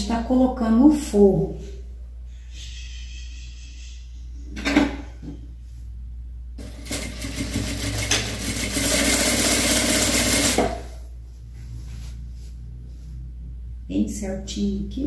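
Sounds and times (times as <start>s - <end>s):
sewing machine stitching: 6.6s - 10.9s.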